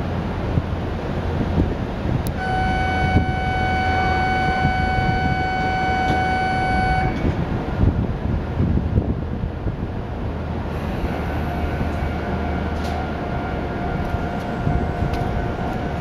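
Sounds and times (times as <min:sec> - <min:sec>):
train low hum: 0:00.0 - 0:16.0
electronic warning tone: 0:02.4 - 0:07.2.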